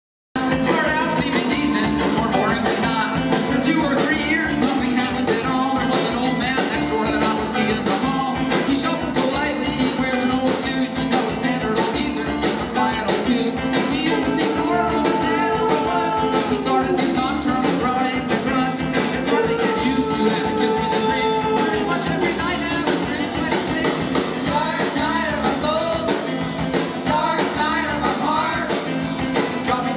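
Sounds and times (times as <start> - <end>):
fast drumbeat: 0.4 - 29.9
guitars: 0.4 - 29.9.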